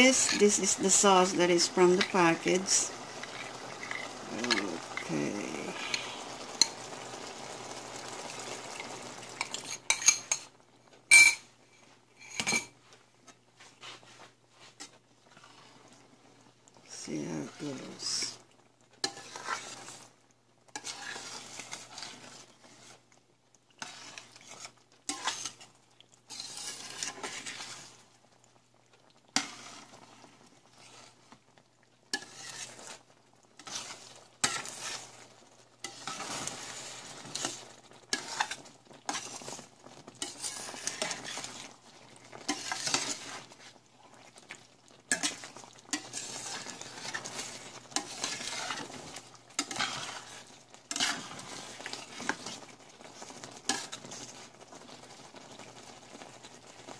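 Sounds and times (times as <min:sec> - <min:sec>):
utensil scraping a pan: 0:00.0 - 0:07.0, 0:19.0 - 0:20.1, 0:20.7 - 0:23.1, 0:23.7 - 0:25.7, 0:26.3 - 0:28.1, 0:29.3 - 0:31.2, 0:32.1 - 0:33.0, 0:33.6 - 0:35.2, 0:35.8 - 0:54.5
sauce simmering: 0:00.0 - 0:56.9.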